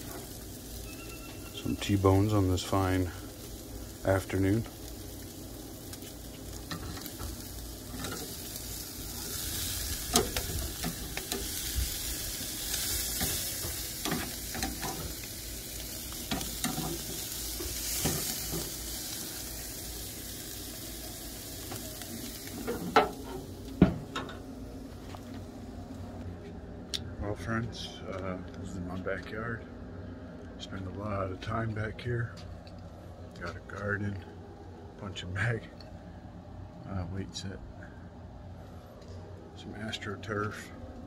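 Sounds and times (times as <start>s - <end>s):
steaks sizzling on a grill: 0.0s - 24.2s
tongs clicking on grill grate: 12.7s - 15.0s, 16.2s - 17.0s
grill lid knocking shut: 22.6s - 24.4s.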